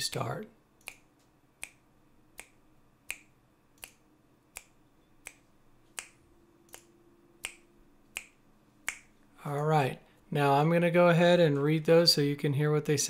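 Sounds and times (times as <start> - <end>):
finger snaps: 0.8 - 1.8, 2.4 - 9.1.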